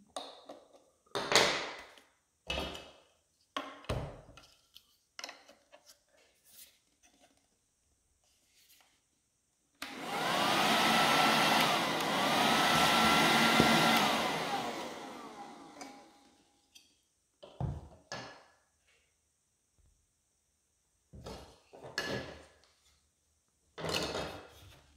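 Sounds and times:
handheld vacuum cleaner whine: 9.8 - 16.5.

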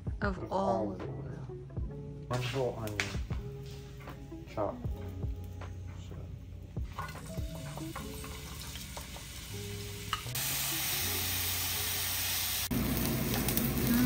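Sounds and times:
onion sizzling in oil: 6.5 - 14.0.

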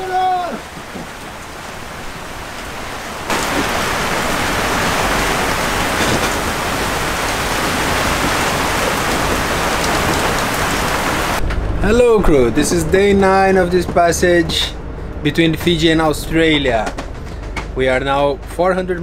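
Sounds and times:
rain: 0.0 - 11.4
rough sea: 0.0 - 11.4
strong wind: 0.0 - 17.8.

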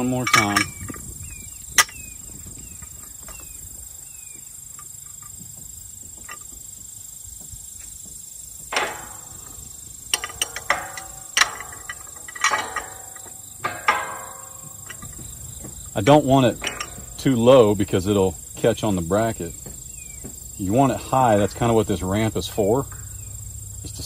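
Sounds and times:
metal gate clanking: 0.0 - 3.6, 8.7 - 24.0
gate latch clicking: 8.7 - 17.8.

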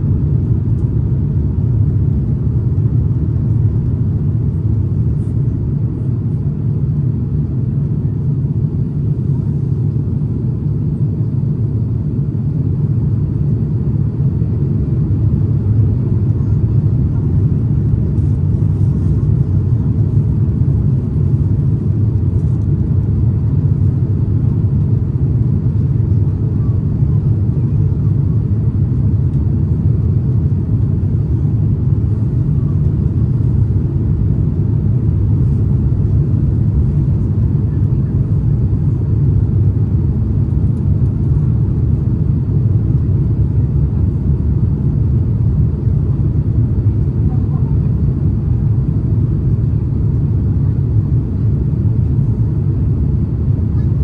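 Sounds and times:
airplane cabin drone: 0.0 - 54.0.

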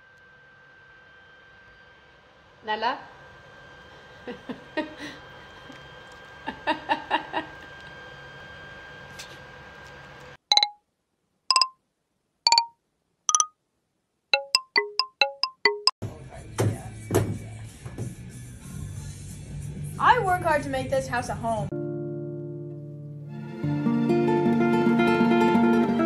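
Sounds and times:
short bright pitched beeps: 10.5 - 10.8, 11.5 - 11.8, 12.5 - 12.7, 13.3 - 13.5.

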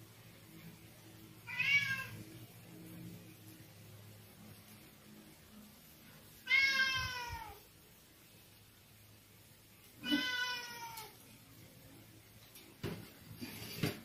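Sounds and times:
cat meowing: 1.4 - 2.2, 6.4 - 7.6, 10.0 - 11.2.

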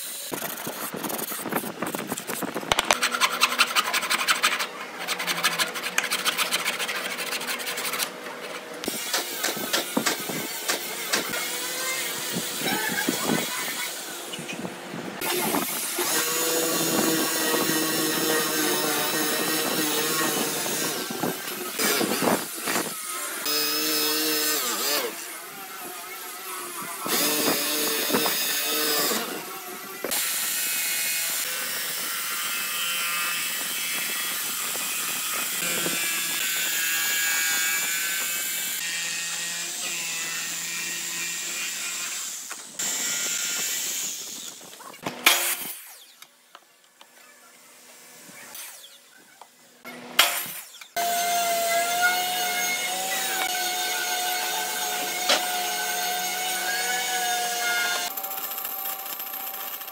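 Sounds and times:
jigsaw cutting wood: 0.0 - 14.1, 15.2 - 46.0, 49.9 - 59.9
drill press boring wood: 52.7 - 59.9.

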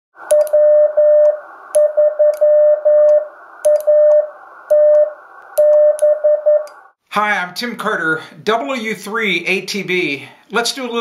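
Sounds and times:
morse code tone: 0.3 - 6.7
background hiss: 1.2 - 11.0
key clicks: 3.1 - 3.9.

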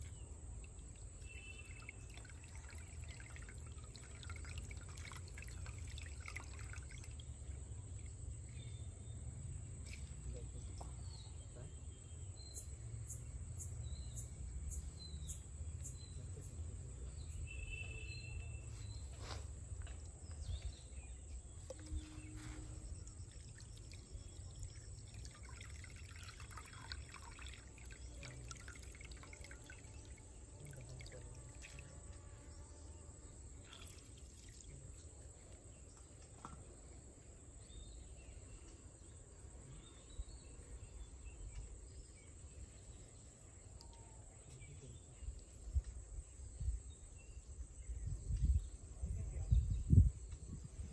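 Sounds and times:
water splashing and trickling: 0.0 - 11.6, 18.9 - 32.6, 33.4 - 36.8
bird chirps: 1.2 - 2.3, 9.8 - 27.3.

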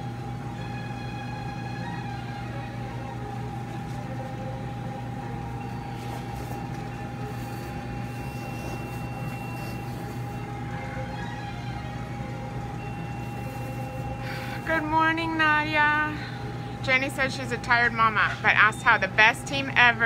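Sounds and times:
machine hum: 0.0 - 20.0
high electronic tone: 5.4 - 16.0.

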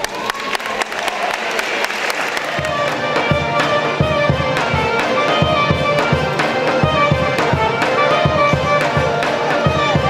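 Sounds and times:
accordion: 2.5 - 10.0
fiddle: 2.5 - 10.0
steady low beat: 2.6 - 10.0.

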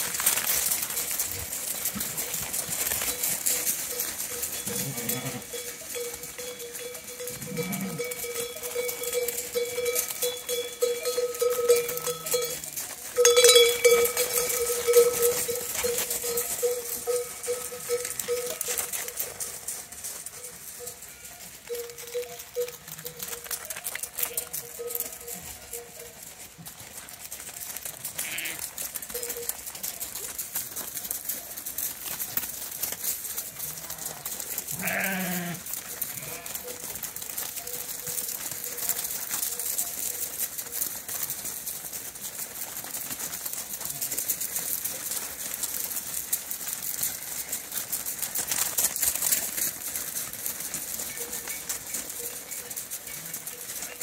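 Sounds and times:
hooves scuffing on gravel: 0.0 - 54.0
sheep bell clanking: 0.0 - 54.0.

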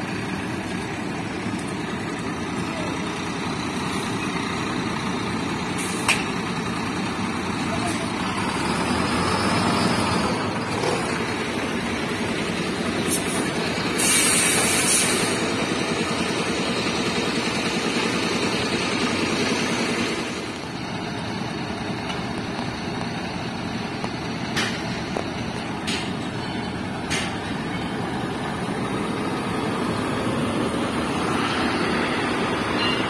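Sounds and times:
diesel trucks idling: 0.0 - 33.0
short hiss: 14.0 - 15.4.

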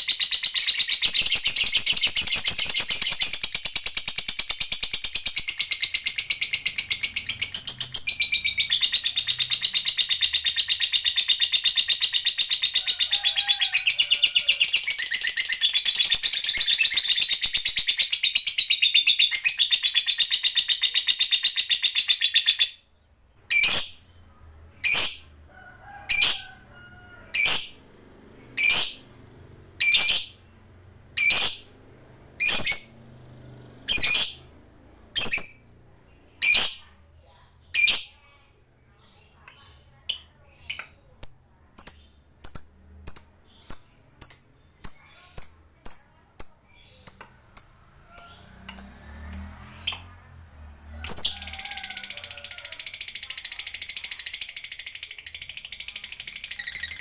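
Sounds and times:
lovebird chattering trill: 0.0 - 22.8, 23.5 - 24.1, 28.5 - 29.0, 29.8 - 30.4, 31.2 - 33.1, 33.8 - 35.7, 36.4 - 37.0
sharp bird calls: 0.0 - 29.2, 29.8 - 33.2.

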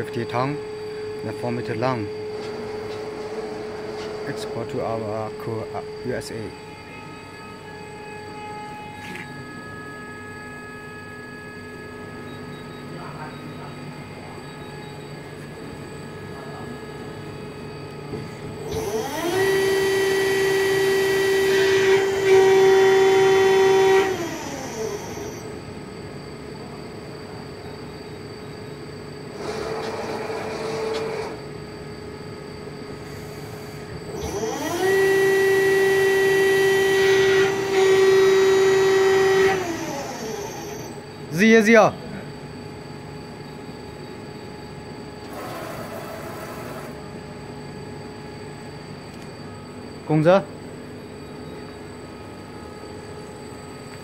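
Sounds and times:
machine servo whine: 0.0 - 26.0, 26.6 - 48.5
short noisy machine movement: 45.3 - 47.0.

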